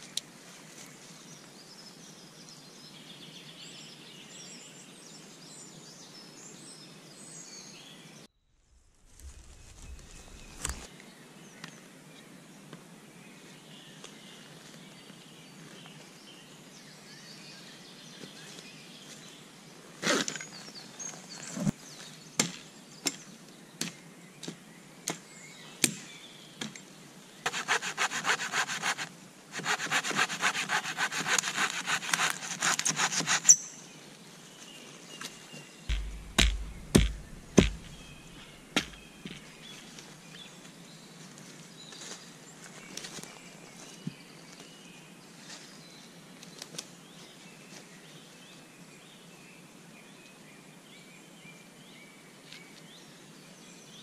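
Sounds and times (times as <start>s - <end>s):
hand saw strokes on wood: 9.2s - 10.9s, 27.5s - 33.6s, 35.9s - 39.4s
single knocks: 35.9s - 39.4s
heavy thumps: 35.9s - 39.5s.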